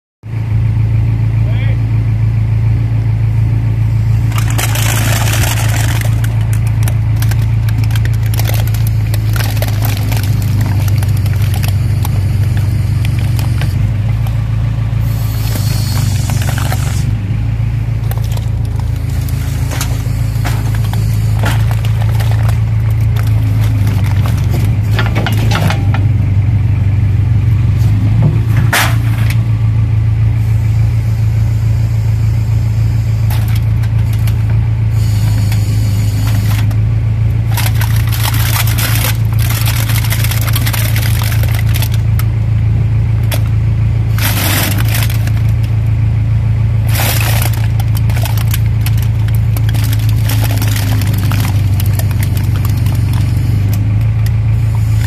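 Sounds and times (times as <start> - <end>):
tractor engine running: 0.2 - 55.0
cans crushing and crackling: 4.3 - 14.4, 15.0 - 17.2, 18.0 - 26.1, 33.2 - 36.8, 37.4 - 42.3, 43.2 - 45.8, 46.8 - 55.0.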